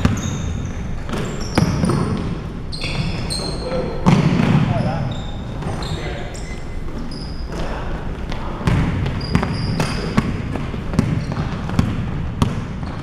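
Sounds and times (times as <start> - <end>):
basketball bouncing on hardwood: 0.0 - 2.4, 4.0 - 4.7, 8.6 - 13.0
sneaker squeaks on floor: 0.0 - 11.8.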